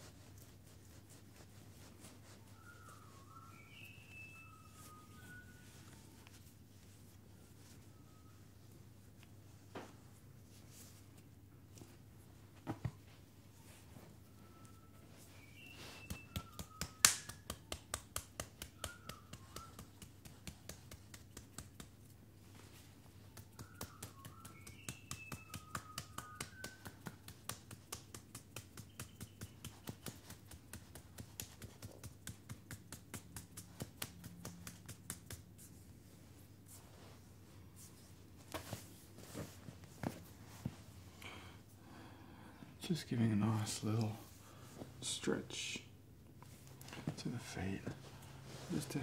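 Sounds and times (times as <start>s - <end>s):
bird chirping: 2.8s - 5.6s, 14.8s - 16.8s, 23.6s - 26.7s
hands clicking on bare foot: 15.4s - 35.8s.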